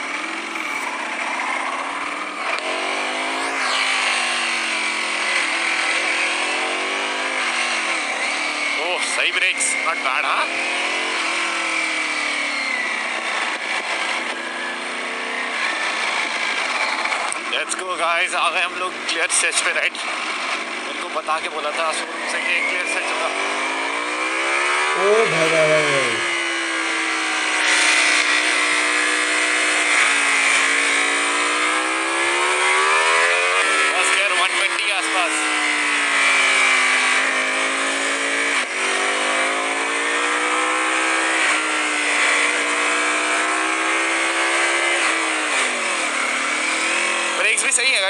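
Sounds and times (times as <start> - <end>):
motorcycle engine running: 0.0 - 6.7.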